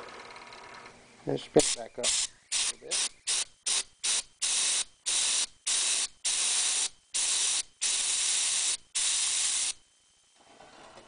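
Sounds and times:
compressed air hissing: 0:01.6 - 0:09.8.

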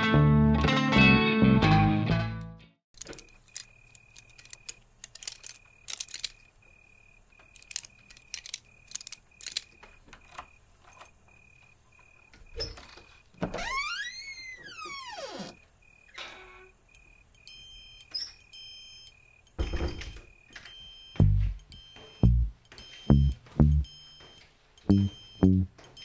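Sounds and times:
long creak: 0:12.6 - 0:16.7
faint high beep: 0:21.0 - 0:25.7.

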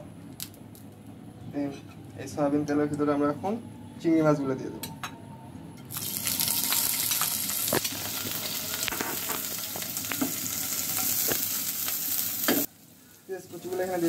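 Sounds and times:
prawns sizzling in oil: 0:05.9 - 0:14.0.

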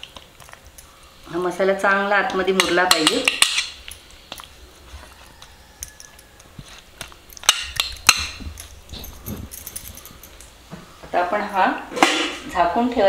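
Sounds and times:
steel plate clicks and taps: 0:02.2 - 0:04.5, 0:05.8 - 0:08.7.

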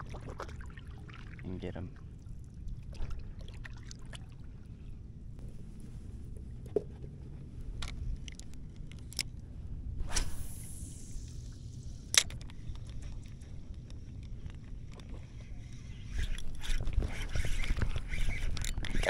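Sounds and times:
steady low rumble: 0:04.3 - 0:17.1
fishing rod cast hiss: 0:10.0 - 0:12.3.

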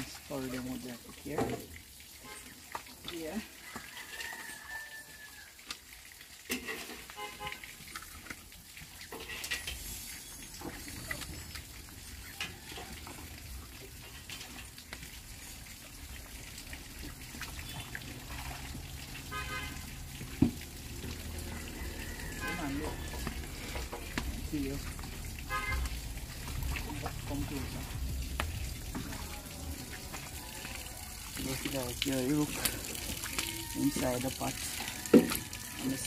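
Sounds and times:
water sloshing: 0:00.0 - 0:36.0
wood fire crackling: 0:23.0 - 0:33.8.

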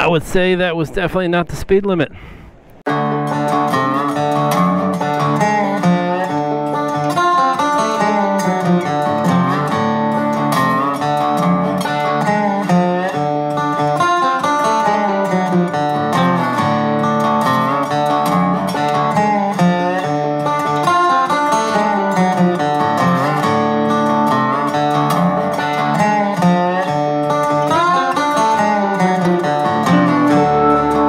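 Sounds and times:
guitar instrumental music: 0:02.6 - 0:31.0.

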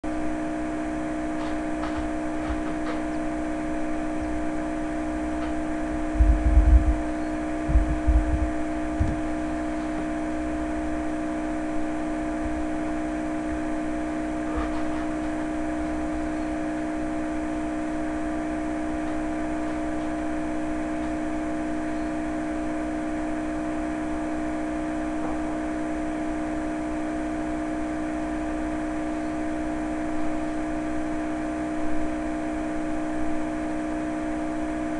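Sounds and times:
steady machine hum: 0:00.0 - 0:34.9
low thumps: 0:06.1 - 0:10.2.

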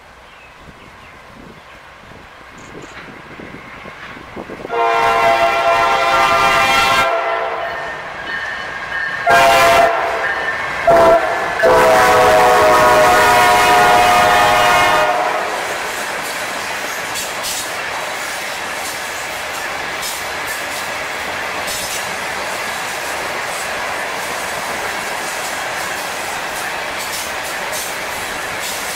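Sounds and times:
train cars rumbling and clattering: 0:00.1 - 0:28.9
locomotive air horn blasts: 0:04.7 - 0:07.8, 0:09.2 - 0:15.8.

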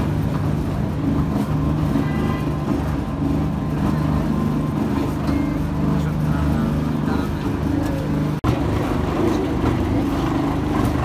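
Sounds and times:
low mechanical hum: 0:00.0 - 0:11.0
traffic: 0:00.0 - 0:11.0
faint crowd voices: 0:01.4 - 0:11.0.

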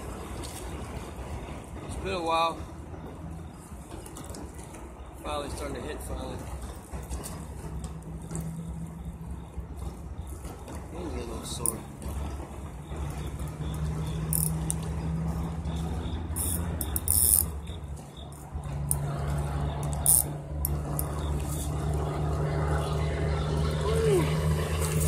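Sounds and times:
low engine hum: 0:00.0 - 0:25.0
fishing reel clicking and rattling: 0:13.1 - 0:15.0, 0:15.8 - 0:21.8.

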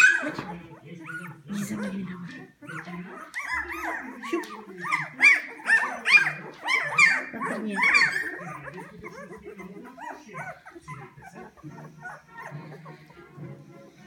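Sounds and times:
puppies squealing and whimpering: 0:00.0 - 0:14.0.

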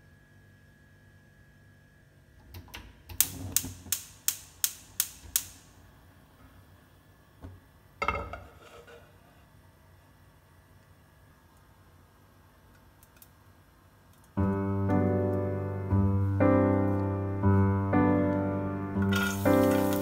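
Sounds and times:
pan set down on grate: 0:08.0 - 0:09.1, 0:19.1 - 0:20.0.

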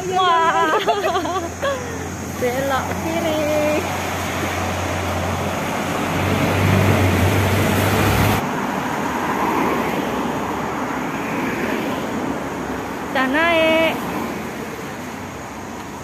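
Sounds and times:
cars passing close by: 0:00.0 - 0:16.0.

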